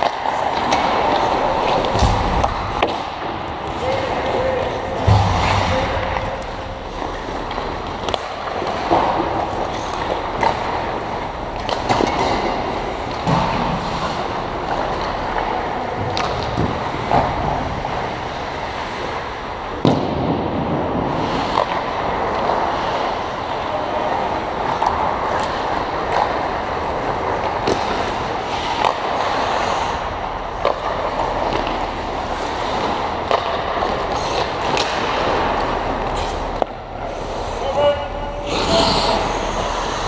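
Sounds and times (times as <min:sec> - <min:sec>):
puck hitting boards: 0:00.0 - 0:04.2, 0:04.8 - 0:17.4, 0:19.8 - 0:20.6, 0:30.6 - 0:36.8
sticks striking puck: 0:00.0 - 0:17.3, 0:18.0 - 0:20.4, 0:21.2 - 0:23.3, 0:24.6 - 0:30.0, 0:30.6 - 0:40.0
skates scraping on ice: 0:00.0 - 0:20.1, 0:20.9 - 0:40.0.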